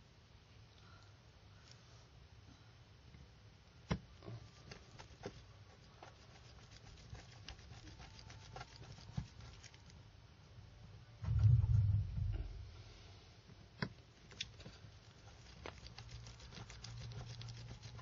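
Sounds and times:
low rumble: 11.2s - 13.2s.

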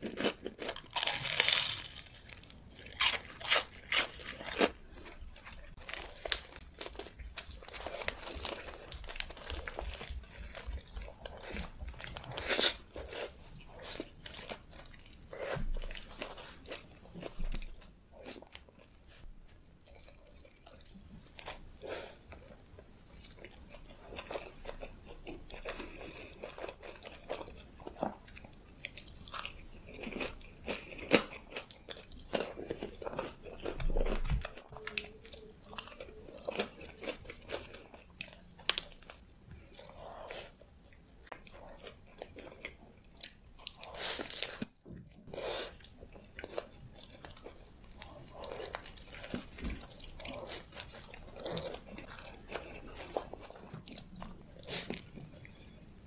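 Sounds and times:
crunching bites of fried snack: 0.0s - 15.5s
chewing food: 0.0s - 56.0s.

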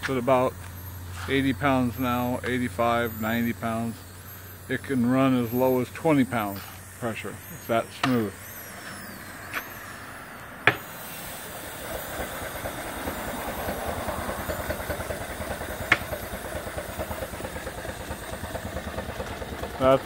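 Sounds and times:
steam engine running: 0.0s - 20.0s
steam hiss: 3.0s - 20.0s
sharp click: 8.0s - 10.0s.

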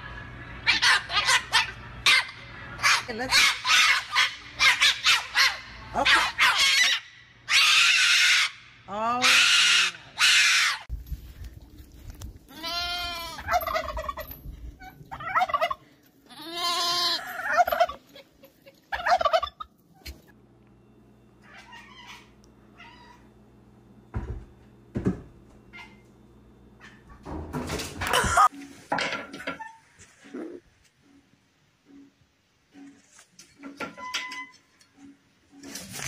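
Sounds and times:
cockatoo screaming: 0.6s - 10.9s
faint low hum: 10.9s - 28.8s.

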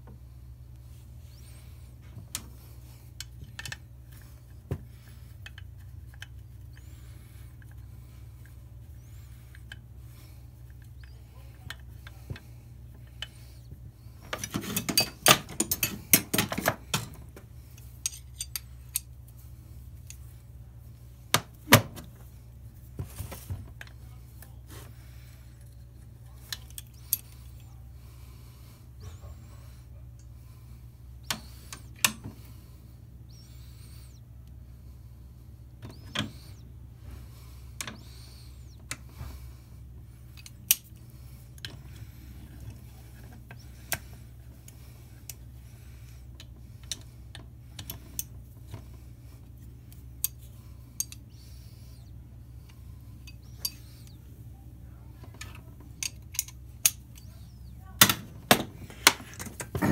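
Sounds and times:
steady low hum: 0.0s - 59.9s
metal parts clattering: 14.4s - 17.0s
metal tools clinking: 14.4s - 17.0s, 17.8s - 19.1s, 53.3s - 54.1s.

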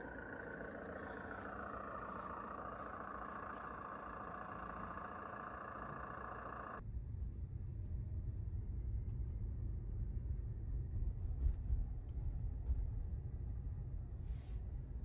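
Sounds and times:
engine idling: 0.0s - 6.8s
low dull rumble: 0.0s - 15.0s.

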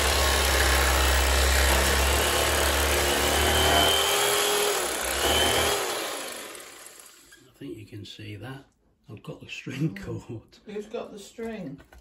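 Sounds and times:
electric knife sawing through meat: 0.0s - 7.3s.

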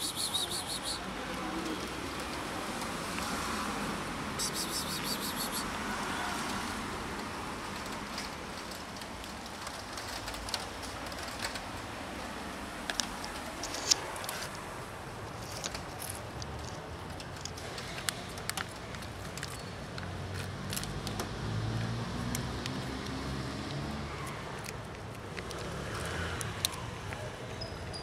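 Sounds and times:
small clicks and rustles: 7.6s - 14.6s, 15.2s - 21.4s, 22.2s - 27.3s.

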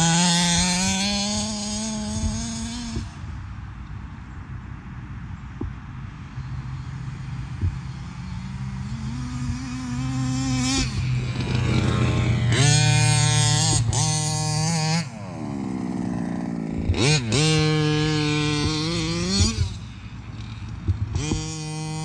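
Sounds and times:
model car engine revving: 0.0s - 3.2s, 7.9s - 22.0s.

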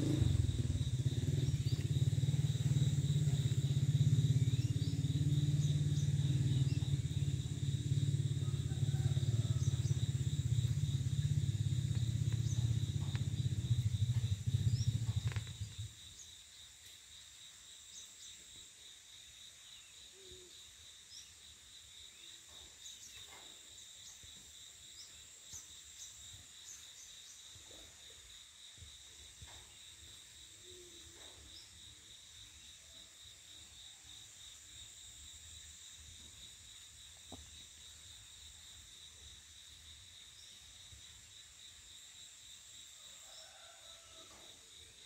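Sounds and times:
insects trilling: 0.0s - 45.0s.

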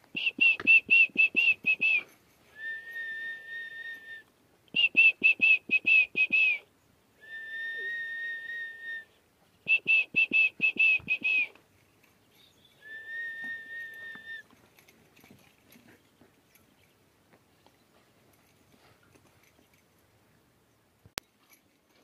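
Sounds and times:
person whistling a phrase: 0.2s - 4.2s, 4.8s - 6.6s, 7.2s - 9.1s, 9.7s - 11.5s, 12.8s - 14.4s.

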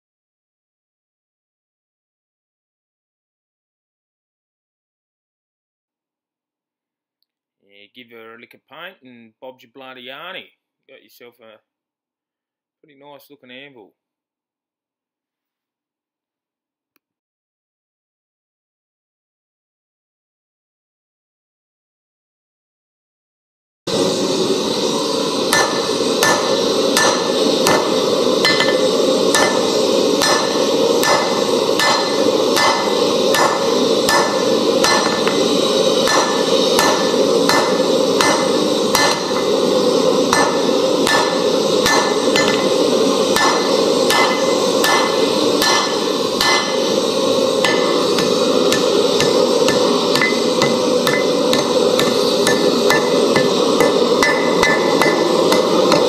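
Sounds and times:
hammer striking steel on anvil: 24.5s - 56.0s.

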